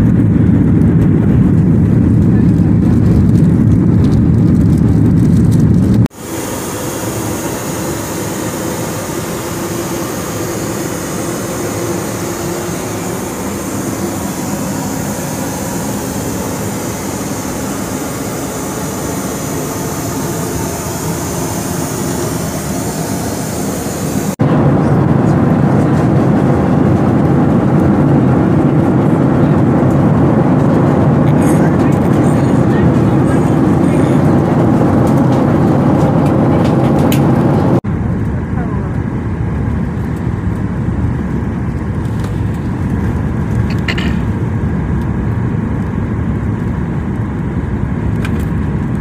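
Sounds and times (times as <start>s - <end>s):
aircraft cabin roar: 0.0s - 49.0s
air hissing in lavatory: 6.1s - 24.4s.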